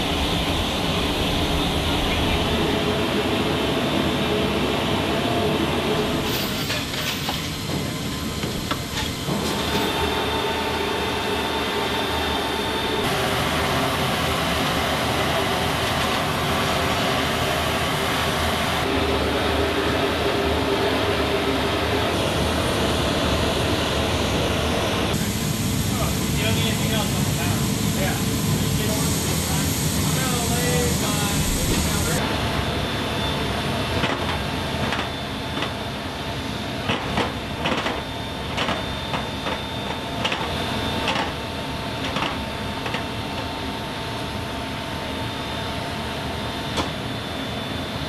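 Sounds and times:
high whine: 0:00.0 - 0:36.9
aircraft machinery drone: 0:00.0 - 0:48.0.

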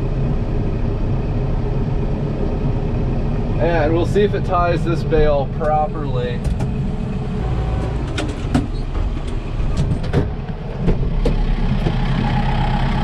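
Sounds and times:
tractor engine running: 0:00.0 - 0:13.0
sharp clicks and knocks: 0:06.4 - 0:06.8.

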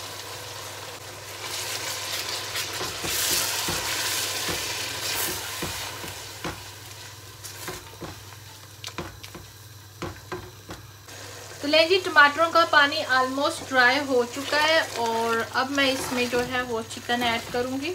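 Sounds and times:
tomato puree sizzling in oil: 0:00.0 - 0:17.9
spatula scraping a metal pot: 0:15.8 - 0:16.6.

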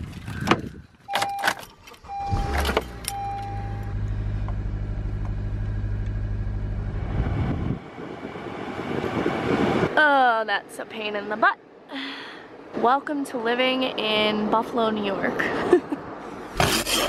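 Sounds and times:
car engine starting and idling: 0:00.3 - 0:09.8.

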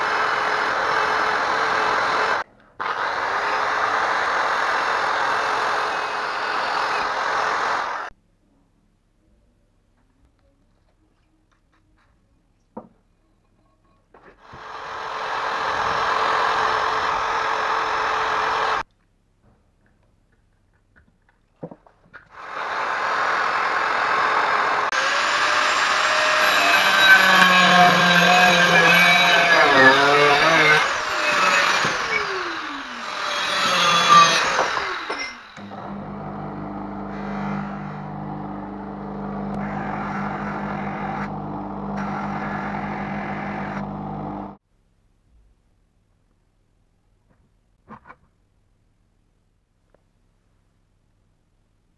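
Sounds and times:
heat gun blowing: 0:22.3 - 0:44.6
angle grinder on metal: 0:22.4 - 0:44.6
bench grinder motor humming: 0:22.4 - 0:44.6.

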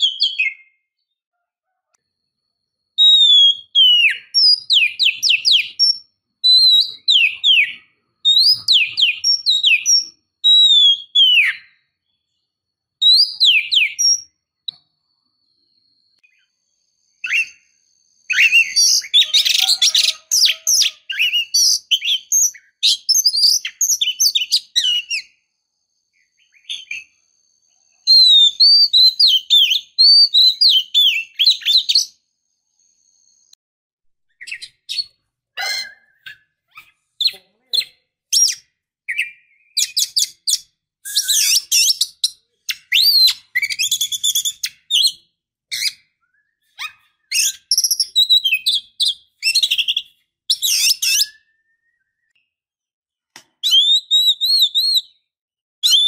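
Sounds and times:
bird singing whistled phrases: 0:00.0 - 0:01.0, 0:03.0 - 0:12.3, 0:13.0 - 0:14.8, 0:17.2 - 0:25.4, 0:26.2 - 0:32.2, 0:34.3 - 0:52.6, 0:53.6 - 0:56.0.

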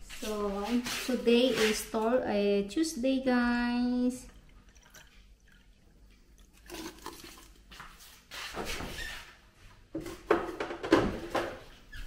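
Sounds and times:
kitchen handling noises: 0:09.9 - 0:11.8.

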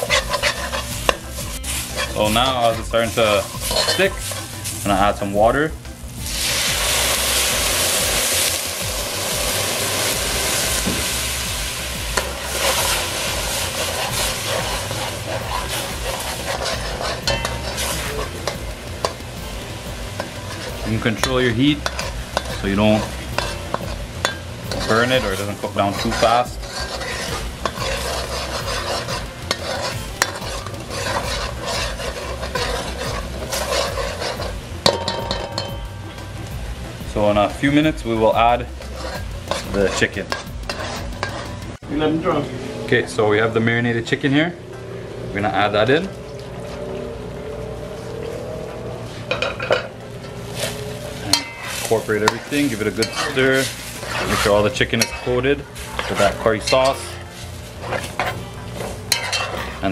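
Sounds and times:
metal spoon scraping a pot: 0:00.0 - 0:04.8, 0:12.1 - 0:19.4, 0:20.2 - 0:35.9, 0:38.2 - 0:41.8, 0:49.2 - 0:59.9
water sizzling in hot oil: 0:00.0 - 0:41.8, 0:49.2 - 0:59.9
spoon clinking against pot: 0:15.3 - 0:19.2, 0:20.2 - 0:36.0, 0:57.9 - 0:59.8.

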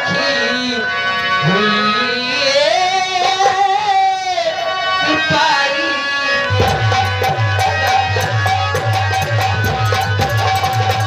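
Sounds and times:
held instrumental drone: 0:00.0 - 0:11.0
drums fast even beat: 0:06.6 - 0:11.0.

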